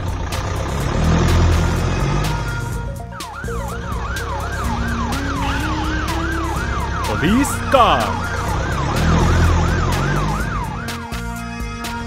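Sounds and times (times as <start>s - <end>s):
background music: 1.0s - 10.8s
police siren wailing: 3.9s - 11.0s.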